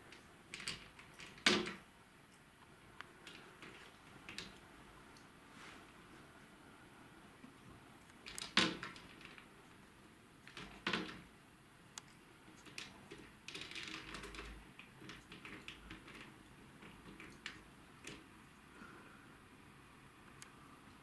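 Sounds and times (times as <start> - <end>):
blind wand knocking and clicking: 0.5 - 1.8, 8.2 - 9.5, 10.4 - 11.3, 12.5 - 18.3.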